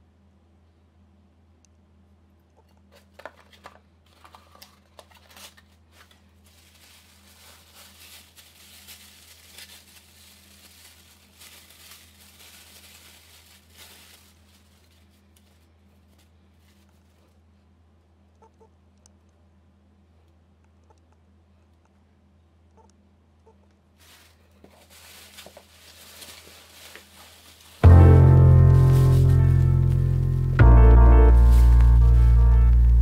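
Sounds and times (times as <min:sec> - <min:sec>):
tissue paper rustling: 0:03.2 - 0:17.3, 0:24.0 - 0:33.0
steady low hum: 0:25.8 - 0:33.0.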